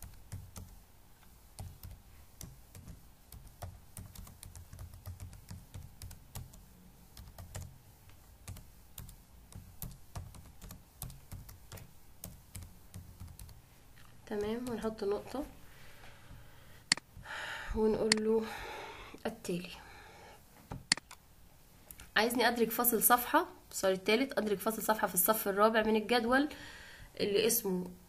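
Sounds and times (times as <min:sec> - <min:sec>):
typing on computer keyboard: 0:01.6 - 0:07.8, 0:08.4 - 0:13.6.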